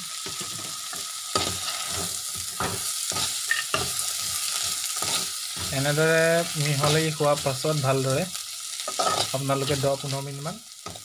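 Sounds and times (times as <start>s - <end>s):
frying sizzle: 0.0s - 11.0s
spoon scraping and clinking pan: 8.9s - 9.4s.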